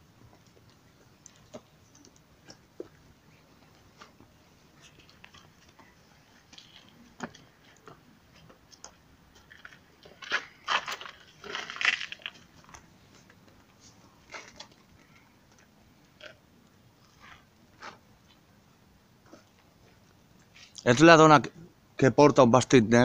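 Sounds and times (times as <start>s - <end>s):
footsteps crunching on gravel: 9.3s - 12.9s.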